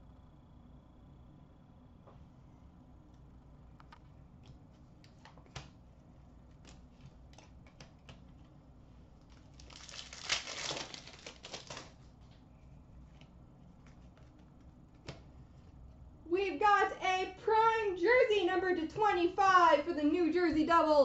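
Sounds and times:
wrapper tearing and crinkling: 9.2 - 12.1.

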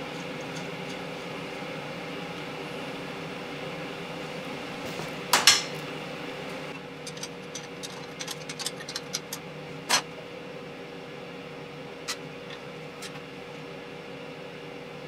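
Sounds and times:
steady hum: 0.0 - 15.0
metal tools clanking: 0.1 - 1.1, 5.4 - 5.8, 7.0 - 10.0.

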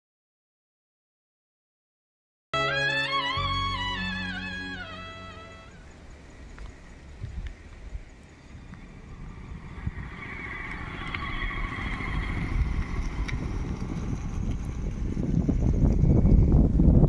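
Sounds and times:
motor scooter engine approaching: 8.5 - 17.0.

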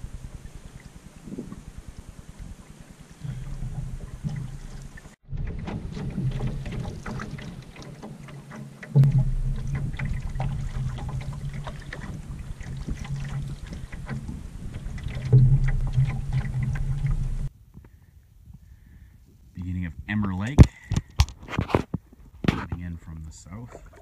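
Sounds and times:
steady low rumble: 0.0 - 7.8, 9.0 - 17.6
water slapping against canoe hull: 0.0 - 17.5.

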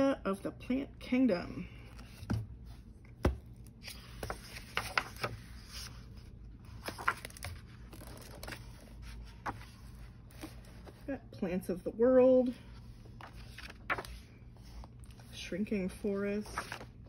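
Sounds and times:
book pages rustling: 1.9 - 11.1, 12.6 - 17.0.

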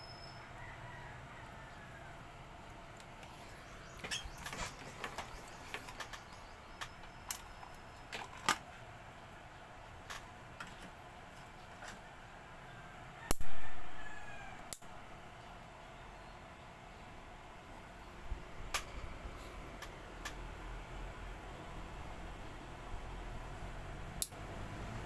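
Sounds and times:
fan housing clicks and knocks: 4.0 - 8.7.

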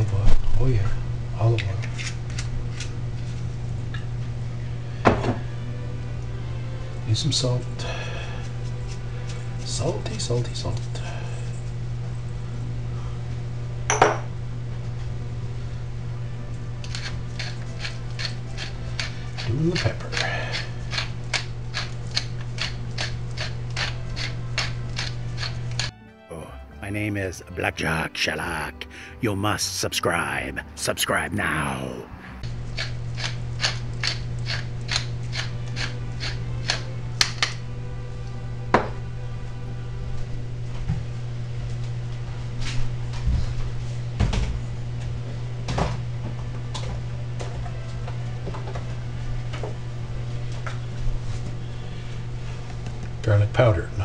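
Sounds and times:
steady low hum: 0.0 - 25.9, 26.6 - 54.0
pepper mill grinding: 16.8 - 25.9, 32.7 - 37.5.

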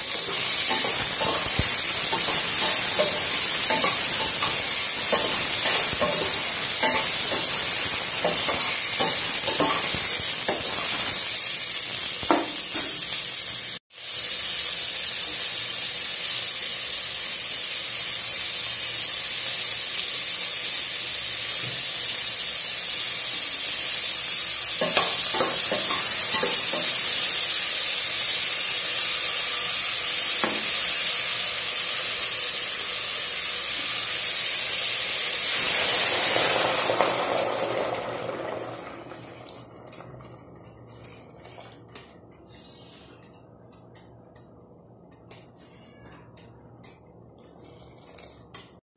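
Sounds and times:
vegetables sizzling in oil: 0.0 - 41.9
spoon scraping and tapping pot: 0.1 - 11.1, 24.8 - 27.1.

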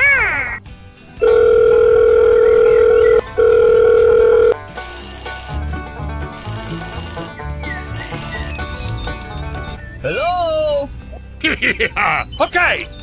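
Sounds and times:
long electronic beep: 1.3 - 5.6, 6.4 - 7.3, 8.0 - 8.5
music beat: 4.6 - 9.8.

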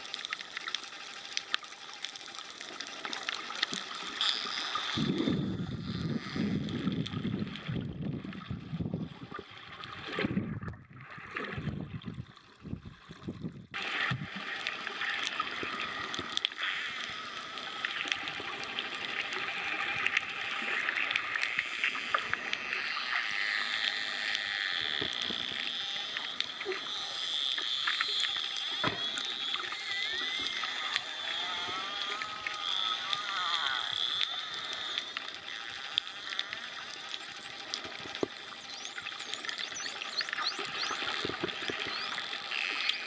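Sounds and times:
rumbling water movement: 0.0 - 43.0
dolphin clicking: 14.1 - 43.0.

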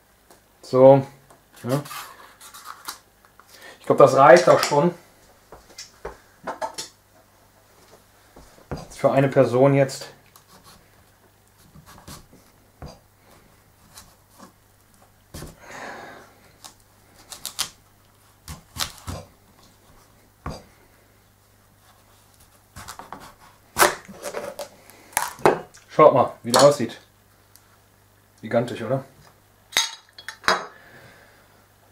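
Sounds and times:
knife cutting squash on board: 11.6 - 13.0, 13.8 - 14.6, 15.4 - 15.6, 16.6 - 17.8, 18.4 - 19.3, 21.8 - 24.6.

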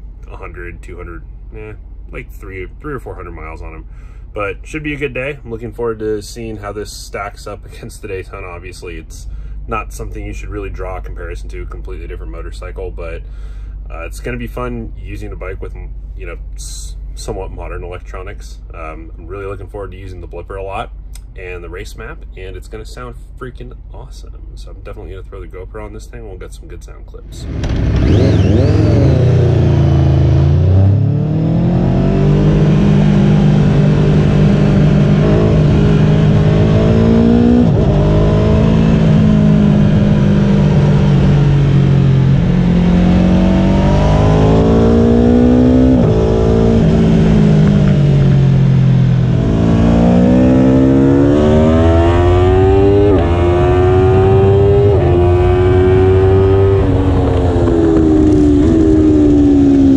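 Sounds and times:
motorcycle engine accelerating: 27.3 - 59.9.

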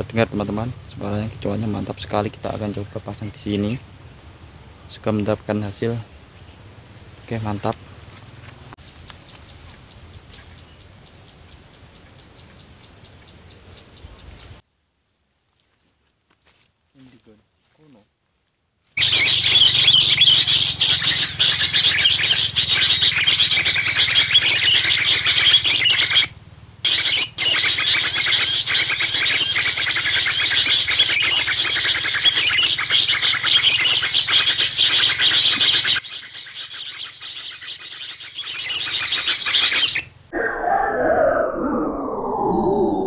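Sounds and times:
small birds chirping and twittering: 0.0 - 14.5, 19.0 - 43.0
steady low hum: 40.2 - 43.0.

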